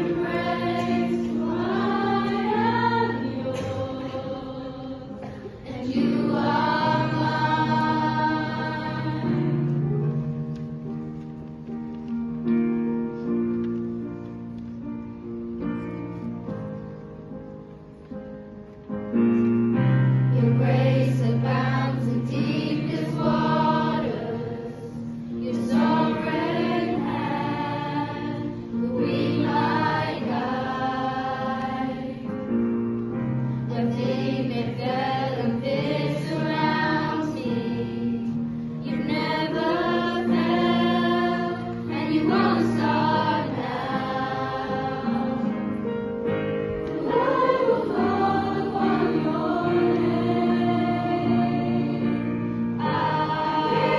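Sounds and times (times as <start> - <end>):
choir singing long notes: 0.0 - 10.2, 20.3 - 32.6, 33.6 - 46.0, 46.8 - 53.9.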